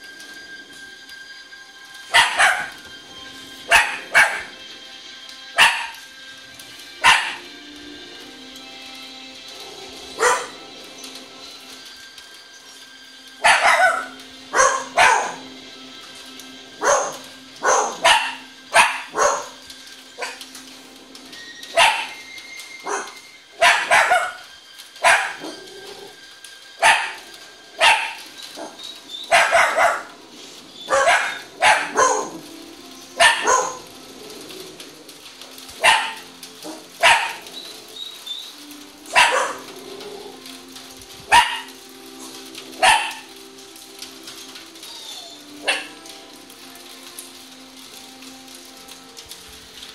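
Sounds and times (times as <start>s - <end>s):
faint film soundtrack: 0.0s - 49.9s
small dog barking: 2.1s - 2.8s, 3.7s - 4.5s, 5.6s - 6.0s, 7.0s - 7.5s, 10.2s - 10.6s, 13.4s - 15.5s, 16.8s - 19.6s, 21.8s - 22.2s, 22.8s - 24.4s, 25.0s - 25.6s, 26.8s - 27.2s, 27.8s - 30.2s, 30.9s - 32.4s, 33.2s - 33.8s, 35.8s - 37.5s, 39.1s - 39.7s, 41.3s - 41.8s, 42.8s - 43.3s, 45.1s - 46.0s.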